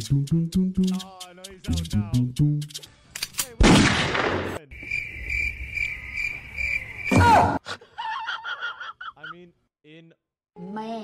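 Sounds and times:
cricket chirping: 4.6 - 7.2.

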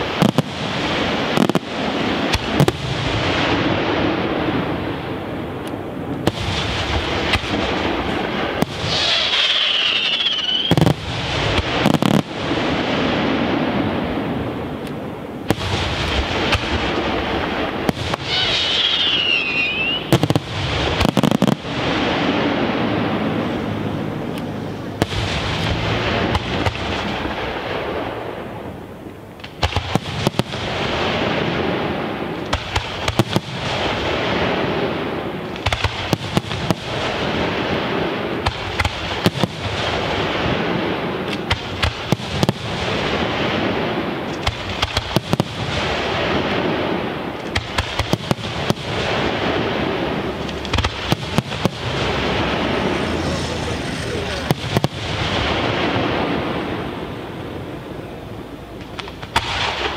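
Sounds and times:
firework shells bursting: 5.6 - 12.6, 14.7 - 22.8
continuous noisy background: 22.4 - 29.6, 50.0 - 59.9.

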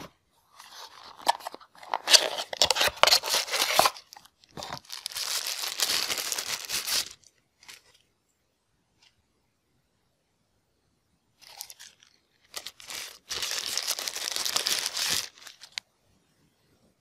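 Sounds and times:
tissue paper crinkling: 0.6 - 8.0, 11.4 - 15.8.

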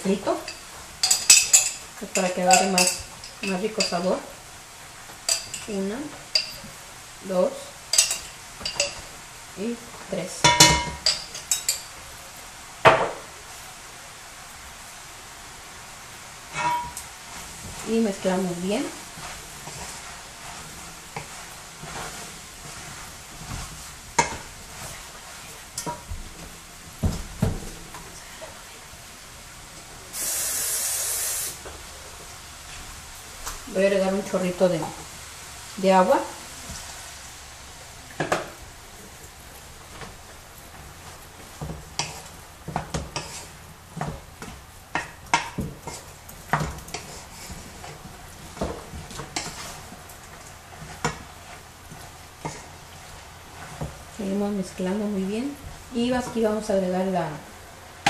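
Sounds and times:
sauce sizzling in a pot: 0.0 - 58.0
wooden spoon scraping a pot: 16.6 - 26.1, 41.8 - 44.6, 45.3 - 55.1.

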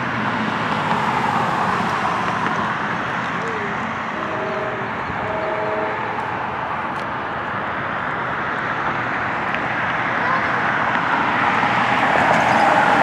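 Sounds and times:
distant engines roaring: 0.0 - 13.0
short steady tone: 4.2 - 6.4.

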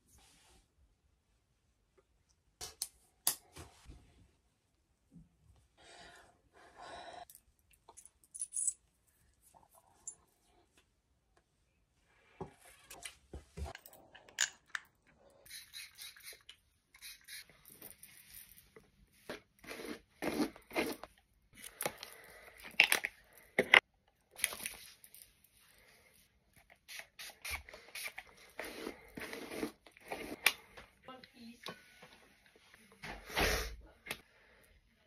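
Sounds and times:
handling small objects: 7.2 - 10.4, 13.7 - 30.9.

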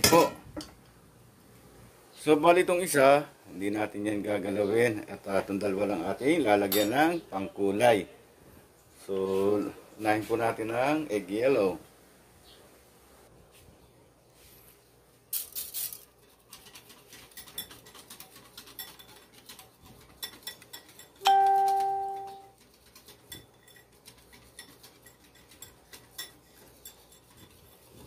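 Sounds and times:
electronic doorbell chime: 21.2 - 22.5.

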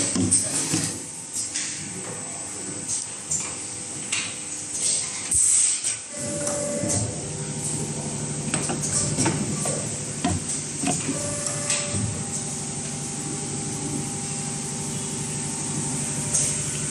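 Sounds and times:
machine steady hum: 6.1 - 16.9
sharp clicks and knocks: 8.5 - 11.9.

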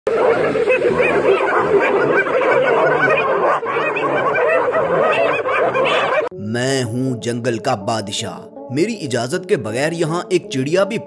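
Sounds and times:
hyenas giggling: 0.1 - 6.3.

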